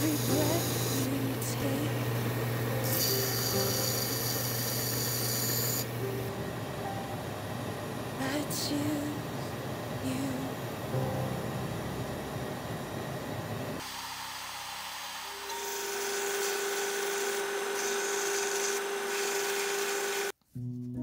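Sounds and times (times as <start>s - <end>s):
belt sander grinding wood: 0.0s - 1.8s, 2.8s - 5.9s, 13.8s - 20.3s.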